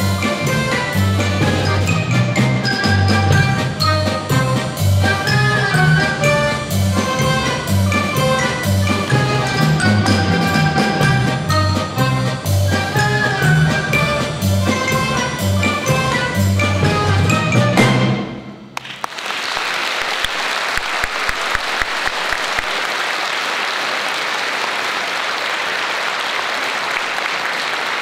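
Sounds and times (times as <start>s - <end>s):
folk orchestra playing: 0.0s - 18.7s
audience applause: 18.8s - 28.0s.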